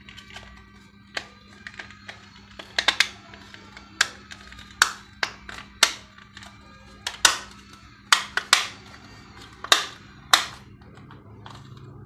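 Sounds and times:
plastic casing snapping clicks: 1.1 - 8.8, 9.4 - 11.1.

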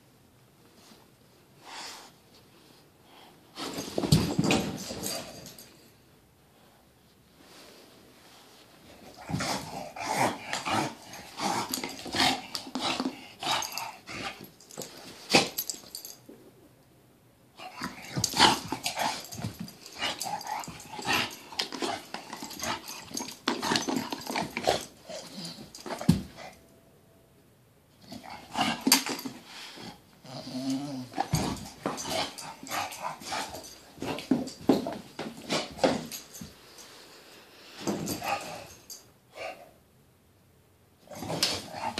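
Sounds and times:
dog growling: 30.2 - 33.4.

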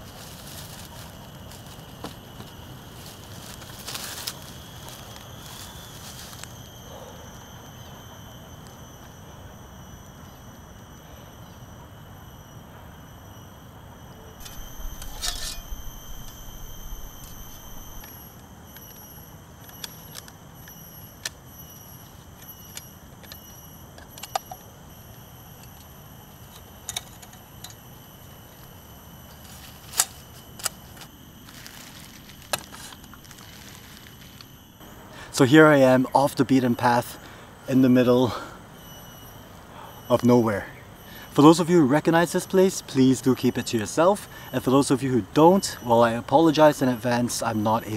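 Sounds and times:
rustle: 0.0 - 6.8, 28.2 - 34.5
high insect drone: 0.0 - 47.9.

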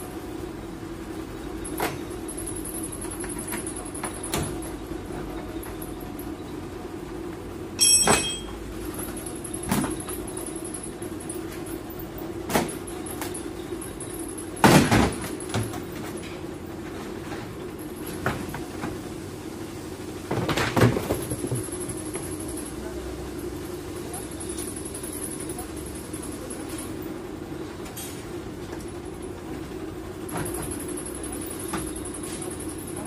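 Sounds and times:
steady hum: 0.0 - 33.0
sharp clack with ring: 7.8 - 8.6.

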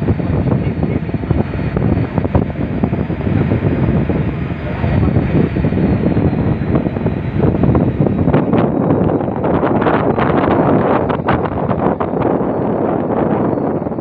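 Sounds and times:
wind on microphone: 0.0 - 14.0.

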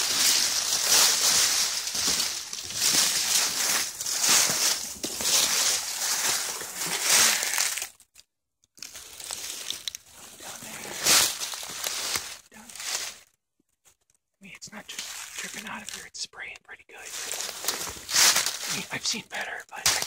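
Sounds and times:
footsteps crunching dry leaves: 0.0 - 7.9, 8.8 - 13.2, 14.9 - 15.9, 17.0 - 19.0, 19.7 - 20.0.

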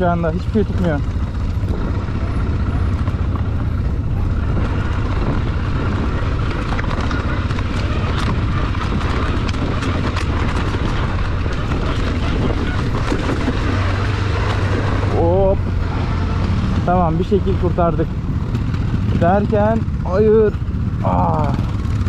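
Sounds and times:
atv engine low rumble: 0.0 - 22.0
clicks and knocks over rough ground: 4.6 - 15.0.

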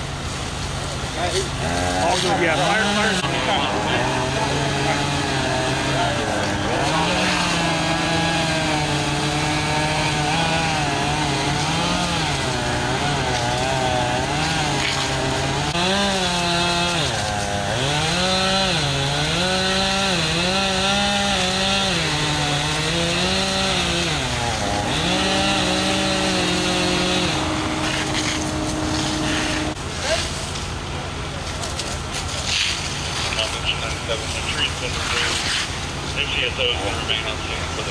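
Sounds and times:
chainsaw cutting wood: 1.3 - 30.4.

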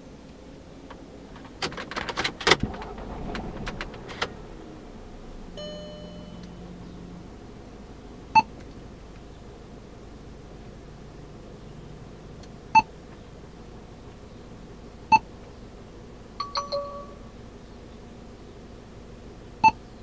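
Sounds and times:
short electronic chime: 5.6 - 6.6, 16.4 - 17.3.

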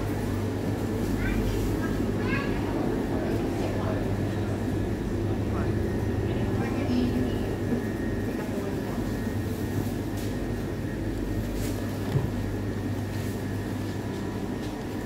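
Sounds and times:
low rumble and hum: 0.0 - 15.0.

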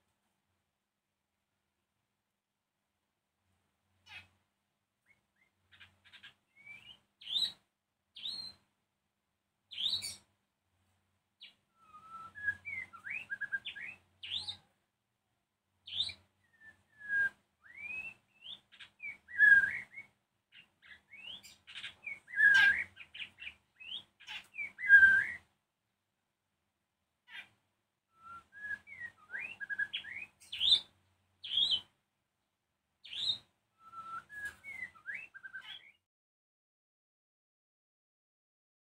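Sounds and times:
bird singing whistles: 6.2 - 7.6, 8.2 - 8.6, 9.7 - 10.2, 11.7 - 14.6, 15.9 - 20.1, 20.8 - 25.5, 28.2 - 31.8, 33.0 - 36.0.

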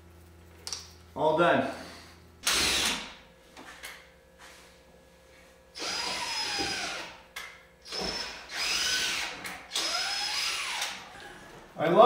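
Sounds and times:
power drill spinning: 2.4 - 3.0, 5.8 - 7.2, 7.8 - 11.2.

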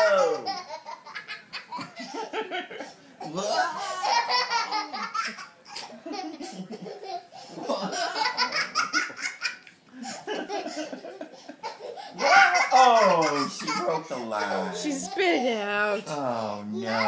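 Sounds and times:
adult laughing: 3.6 - 14.5
child laughing: 3.8 - 15.3.

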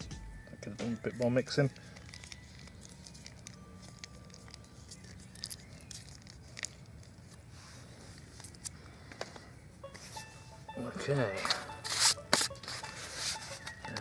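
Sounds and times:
jam spreading on bun: 1.7 - 8.3.

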